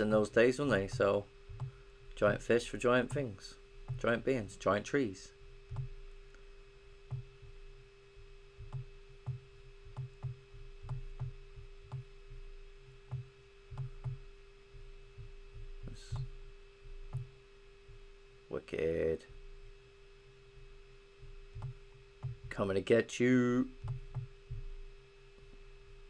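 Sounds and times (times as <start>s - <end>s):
electrical hum: 0.0s - 26.0s
computer mouse clicking: 0.9s - 1.8s, 5.7s - 6.4s, 7.1s - 7.3s, 8.6s - 12.1s, 13.1s - 14.2s, 21.6s - 22.5s.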